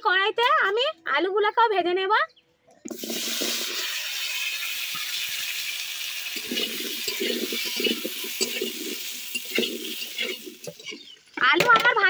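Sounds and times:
potato wedges sizzling in oil: 0:02.9 - 0:11.6
metal spatula scraping a pan: 0:03.0 - 0:11.4.

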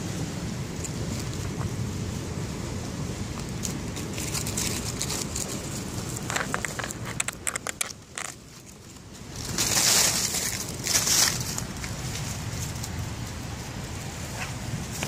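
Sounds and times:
steady low rumble: 0:00.0 - 0:15.0
muskrat chewing leaves: 0:03.2 - 0:15.0
rustling: 0:03.4 - 0:15.0.

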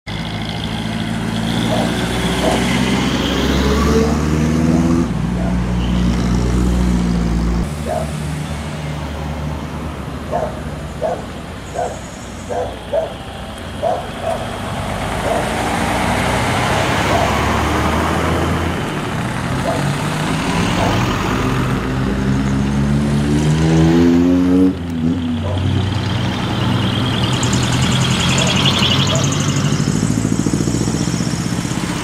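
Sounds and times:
engine accelerating: 0:00.1 - 0:09.6, 0:11.8 - 0:32.0
trucks driving past: 0:00.1 - 0:32.0
tyre and road noise: 0:00.1 - 0:32.0.

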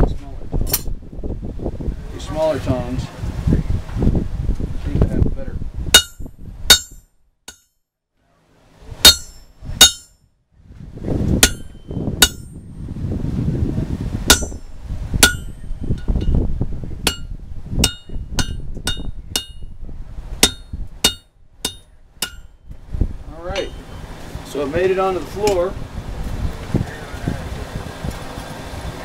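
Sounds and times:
hammer striking hot steel on anvil: 0:05.9 - 0:07.7, 0:09.0 - 0:10.2, 0:11.4 - 0:12.6, 0:14.3 - 0:16.4, 0:17.1 - 0:19.8, 0:20.4 - 0:22.6, 0:23.6 - 0:23.9
low rumble: 0:08.9 - 0:29.0.

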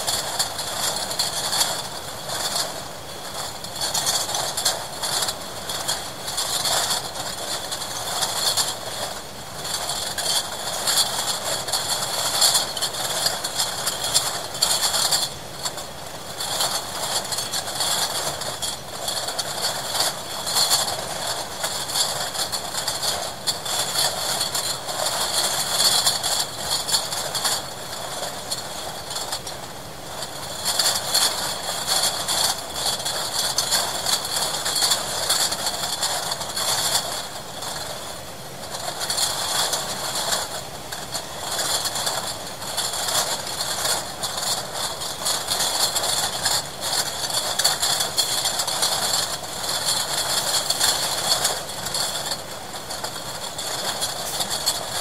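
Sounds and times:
steady mechanical noise: 0:00.0 - 0:55.0
machinery clattering with small clicks: 0:38.6 - 0:55.0.

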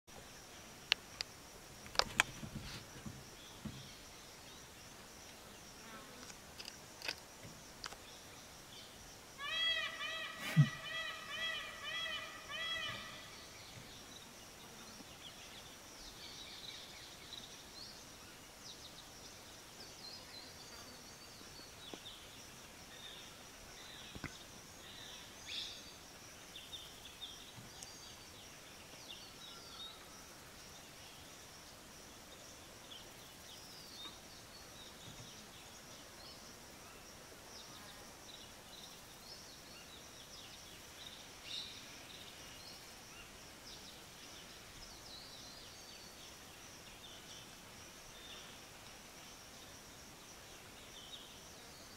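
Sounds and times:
steady hiss: 0:11.7 - 0:51.9.

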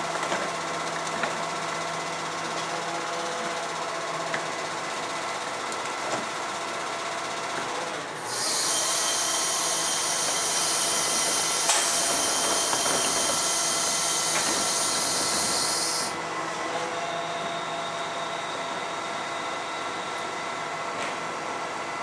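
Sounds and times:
loud steady hiss: 0:09.4 - 0:16.2.

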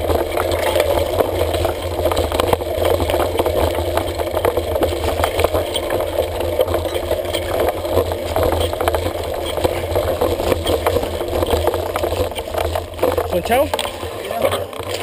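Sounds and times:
bike and mount rattling: 0:00.0 - 0:15.0
bike tyres rumbling on dirt: 0:00.0 - 0:15.0.

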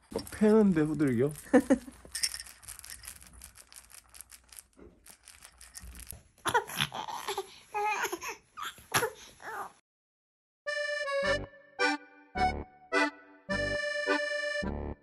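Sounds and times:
plastic toy rings rattling: 0:00.0 - 0:06.3
infant crying: 0:06.5 - 0:09.8.

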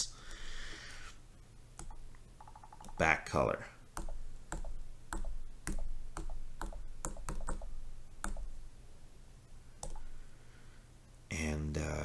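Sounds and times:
stylus tapping touchscreen: 0:01.8 - 0:03.1, 0:04.0 - 0:08.6.

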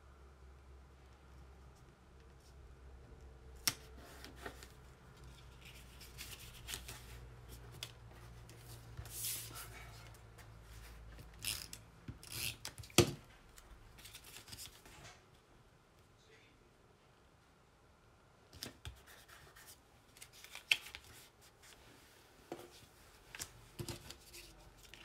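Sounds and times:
paper rustling and rubbing: 0:04.0 - 0:10.0.

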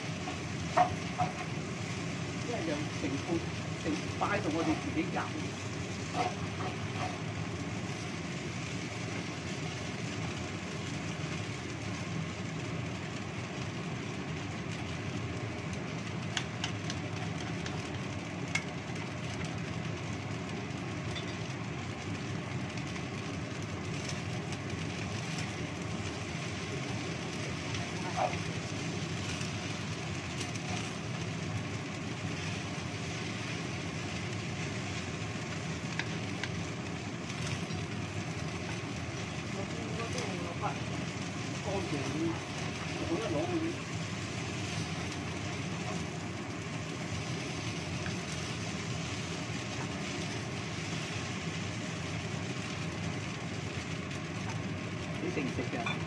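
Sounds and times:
gas burner rushing: 0:00.0 - 0:56.0
noodles frying in wok: 0:00.0 - 0:56.0
wooden spatula knocking pan: 0:00.2 - 0:01.6.

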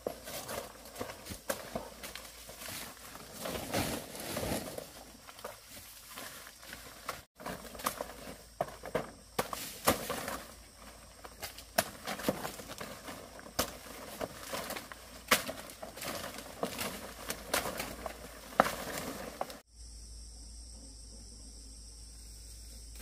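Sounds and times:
leaves rustling: 0:00.0 - 0:19.7
insects chirring: 0:00.0 - 0:23.0
stems snapping: 0:09.4 - 0:10.5, 0:11.3 - 0:19.6.

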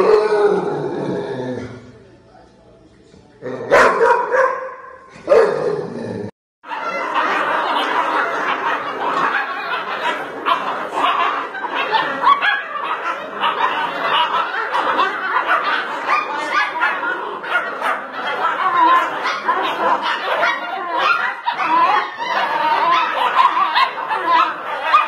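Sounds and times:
puppies yapping and whining: 0:06.7 - 0:25.0.

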